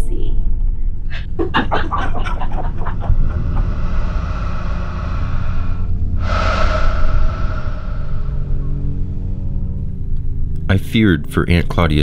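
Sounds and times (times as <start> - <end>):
low rumbling drone: 0.0 - 10.8
breathy whoosh: 1.0 - 10.2.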